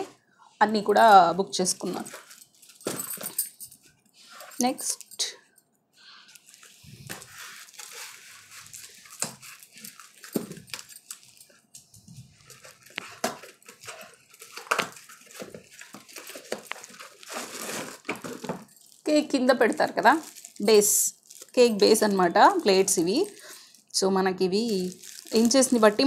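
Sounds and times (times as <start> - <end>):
cardboard scraping and crinkling: 6.6 - 11.4, 12.2 - 18.7.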